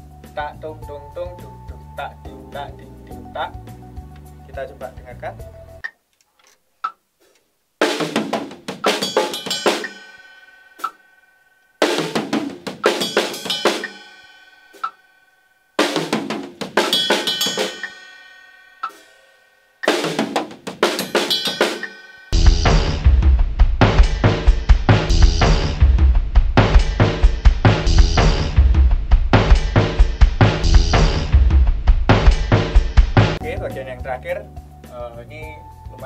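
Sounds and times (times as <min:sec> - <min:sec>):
drum kit fill: 0:07.8 - 0:11.1, 0:11.8 - 0:15.0, 0:15.8 - 0:34.0.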